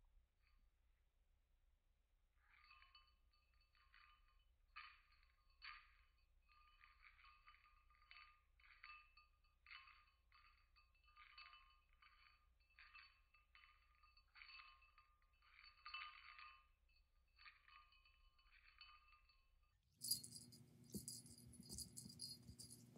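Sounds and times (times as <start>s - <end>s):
chime-like tinkling: 17.4s - 22.9s.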